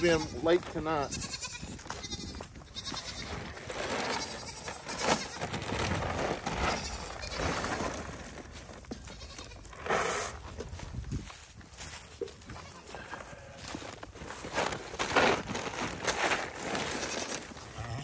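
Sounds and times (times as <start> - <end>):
goats bleating: 0.0 - 9.9, 11.9 - 13.8, 15.6 - 18.0.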